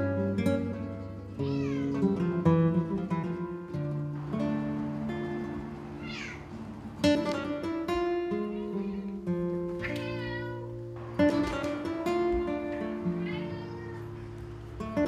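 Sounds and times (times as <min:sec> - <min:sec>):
acoustic guitar music: 0:00.0 - 0:15.0
cat meowing: 0:01.4 - 0:02.2, 0:05.4 - 0:06.8, 0:09.8 - 0:11.4, 0:12.9 - 0:14.4.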